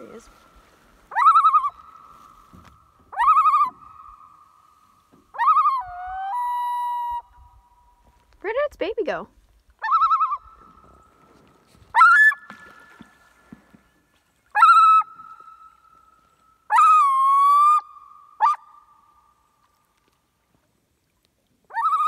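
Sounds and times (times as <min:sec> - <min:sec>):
loon calling: 0:01.0 - 0:08.0, 0:09.8 - 0:11.2, 0:11.9 - 0:13.2, 0:14.4 - 0:19.4, 0:21.7 - 0:22.0.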